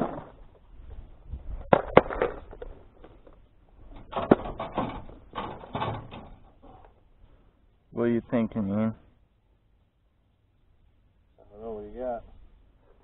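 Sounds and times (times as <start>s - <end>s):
rustling: 0.0s - 7.6s.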